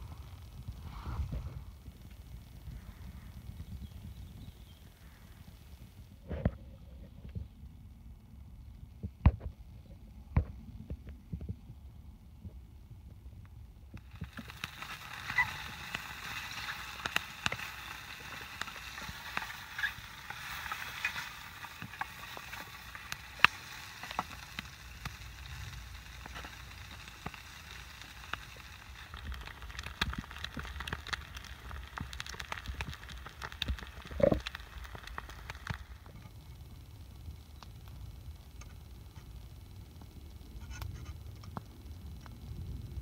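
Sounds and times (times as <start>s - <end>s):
fire crackling and popping: 0.0s - 43.0s
food sizzling in oil: 14.0s - 36.1s.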